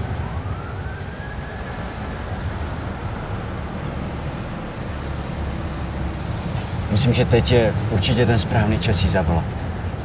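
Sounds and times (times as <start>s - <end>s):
moving vehicle rumble: 0.0s - 10.0s.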